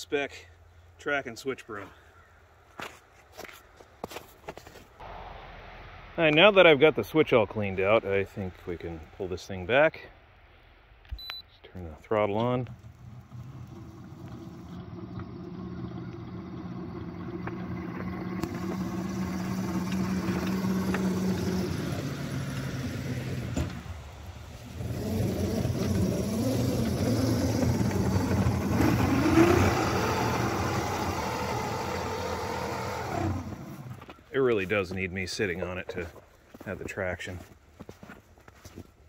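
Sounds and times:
short rising whine: 5.0 - 7.5, 12.8 - 34.1
miniature locomotive running: 24.8 - 33.7.

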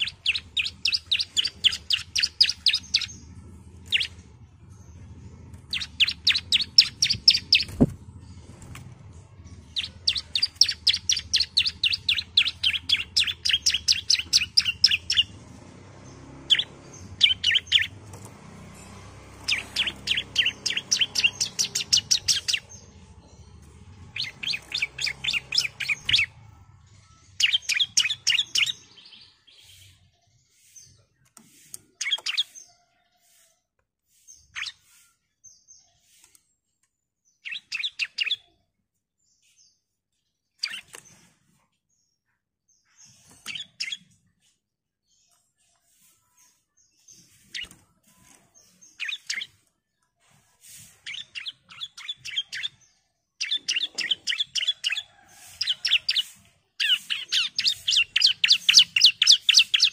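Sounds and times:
bird chattering song: 0.0 - 31.0, 31.6 - 33.4, 37.4 - 38.6, 40.5 - 41.2, 42.8 - 44.5, 48.6 - 49.6, 50.6 - 59.9.

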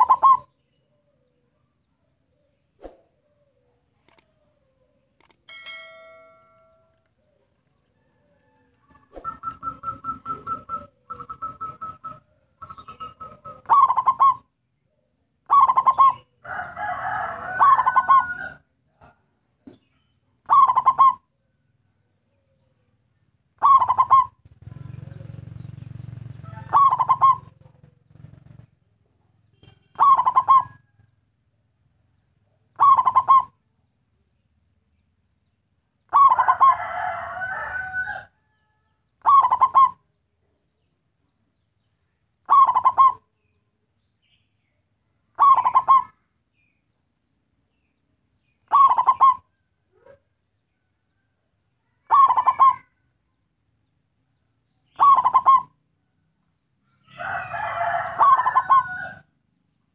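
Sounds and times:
dove cooing: 0.0 - 1.6, 6.6 - 19.2, 20.4 - 21.4, 23.6 - 28.7, 30.0 - 31.1, 32.7 - 33.6, 36.1 - 40.2, 42.4 - 43.3, 45.3 - 46.2, 48.6 - 50.2, 51.9 - 53.1, 54.9 - 55.8, 57.2 - 59.3.

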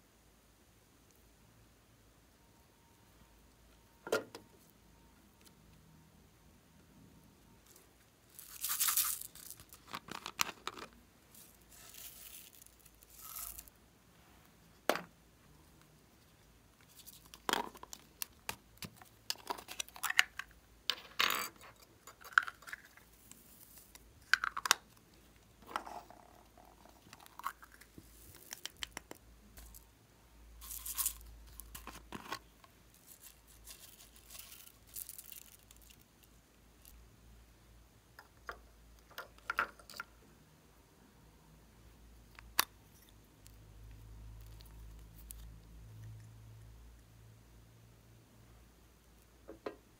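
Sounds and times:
plastic bottles handled: 8.3 - 13.7
sprinkles pattering into dish: 8.4 - 9.8, 11.3 - 13.7.

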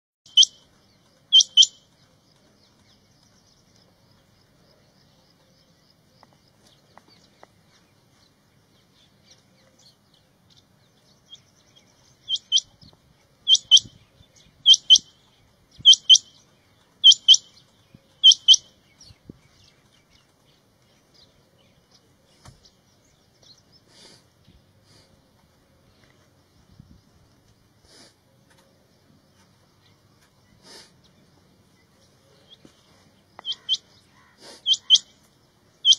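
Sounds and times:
quail calling: 1.3 - 1.8, 13.5 - 13.9, 14.6 - 15.1, 15.8 - 16.3, 17.0 - 17.5, 18.2 - 18.7, 33.4 - 35.2.

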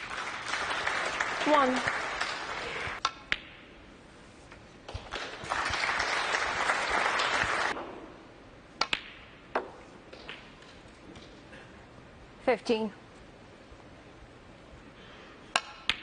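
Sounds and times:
audience applause: 0.0 - 3.0, 5.0 - 7.8
snooker balls clicking: 8.8 - 11.4.

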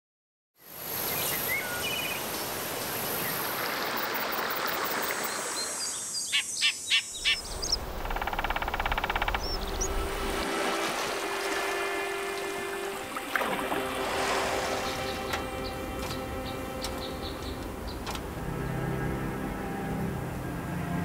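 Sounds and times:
steady outdoor hiss: 0.6 - 21.0
birds chirping: 1.0 - 18.9
loud bird call notes: 6.3 - 18.0.

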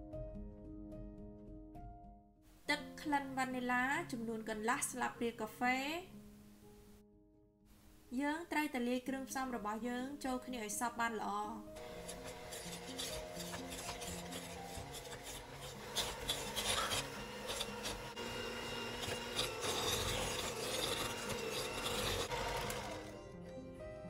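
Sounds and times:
electric hand mixer beating dough: 11.8 - 23.3.

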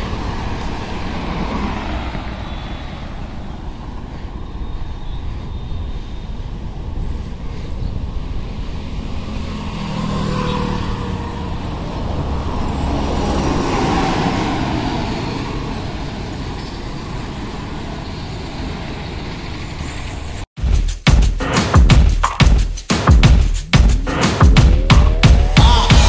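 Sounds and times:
bus engine passing: 0.0 - 7.0, 8.0 - 20.5
road traffic: 0.0 - 20.6, 22.8 - 26.0.

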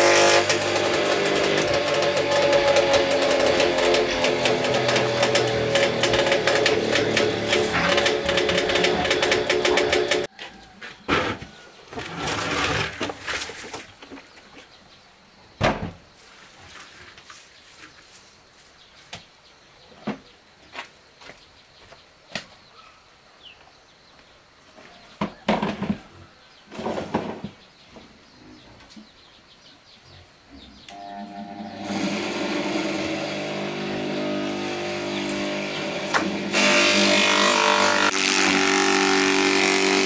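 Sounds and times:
rustling or scraping: 0.4 - 14.8, 16.2 - 19.1, 26.7 - 27.7
knocks and clicks: 0.5 - 10.3.

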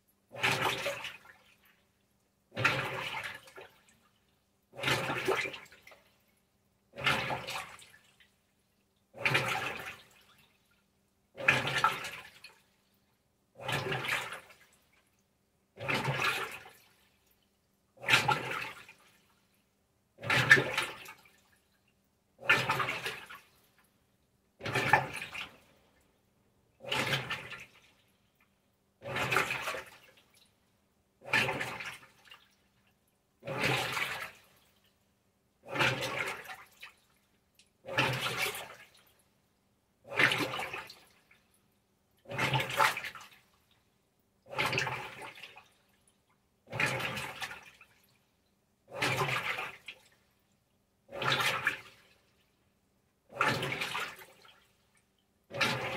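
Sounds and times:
washing machine water sloshing: 0.3 - 1.8, 2.5 - 4.0, 4.7 - 6.1, 6.9 - 8.3, 9.1 - 10.6, 11.3 - 12.6, 13.6 - 14.8, 15.8 - 17.2, 18.0 - 19.3, 20.2 - 21.6, 22.4 - 23.6, 24.6 - 25.8, 26.8 - 28.2, 29.0 - 30.5, 31.2 - 32.6, 33.4 - 34.9, 35.6 - 37.2, 37.8 - 39.2, 40.0 - 41.4, 42.2 - 43.6, 44.4 - 45.9, 46.6 - 48.1, 48.9 - 50.2, 51.1 - 52.2, 53.3 - 54.7, 55.5 - 55.9.

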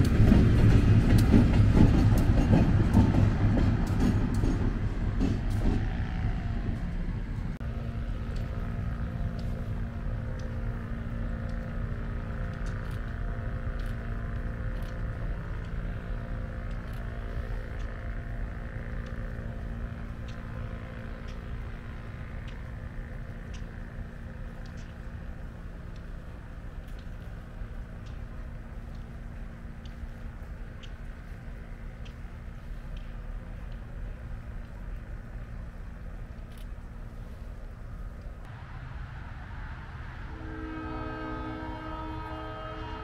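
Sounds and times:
diesel locomotive engine running: 0.0 - 43.0
faint clicks: 18.8 - 38.5.

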